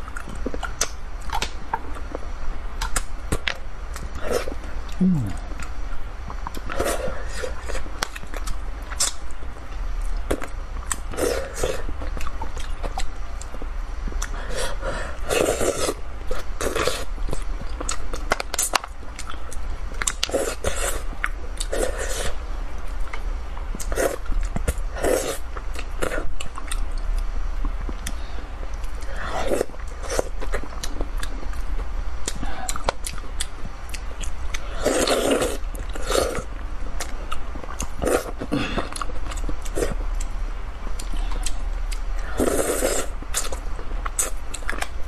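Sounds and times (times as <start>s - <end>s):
person chewing and slurping: 14.2s - 22.4s, 32.2s - 40.0s, 40.9s - 44.9s.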